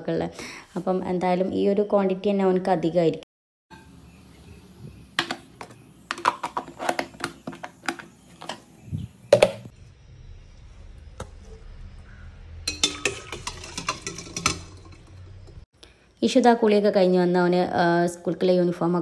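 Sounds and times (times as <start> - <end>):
kitchen utensils clinking: 12.7 - 15.6.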